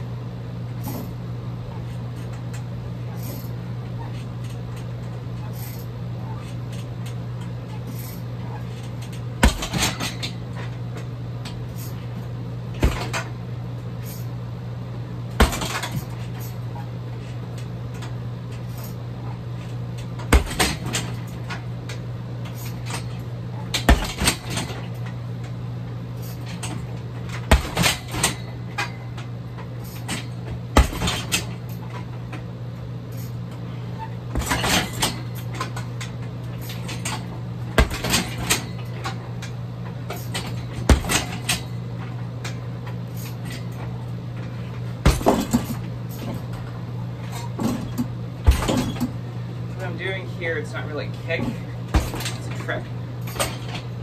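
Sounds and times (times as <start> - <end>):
steady low hum: 0.0 - 54.0
thuds on a heavy bag: 9.4 - 10.3, 12.7 - 13.3, 15.3 - 16.2, 20.2 - 21.2, 23.7 - 24.8, 27.3 - 28.4, 30.0 - 31.5, 34.3 - 35.4, 37.8 - 38.7, 40.3 - 41.6, 45.0 - 46.7, 47.6 - 49.2, 51.9 - 52.5.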